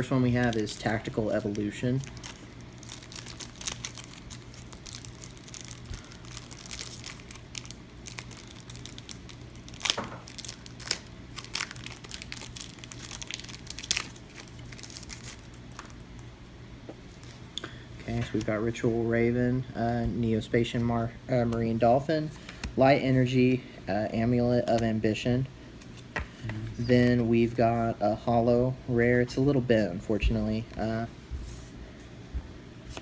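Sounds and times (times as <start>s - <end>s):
foil wrapper tearing and crinkling: 0.0s - 16.0s.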